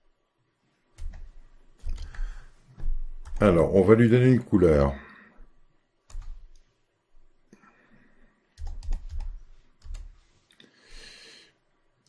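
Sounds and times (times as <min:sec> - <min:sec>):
typing on computer keyboard: 0:01.0 - 0:03.5, 0:06.1 - 0:06.6, 0:08.6 - 0:10.2.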